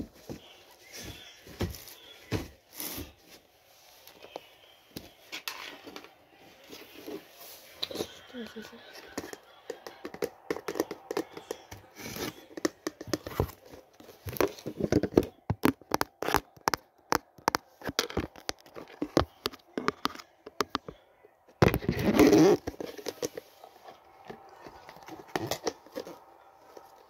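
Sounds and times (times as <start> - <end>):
fingers tapping on plastic: 9.2 - 11.8, 14.3 - 21.0.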